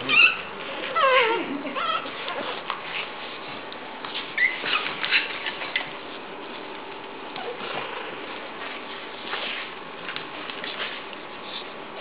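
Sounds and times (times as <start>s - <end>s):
puppies squealing and whining: 0.0s - 3.1s, 4.1s - 6.1s, 7.3s - 8.0s.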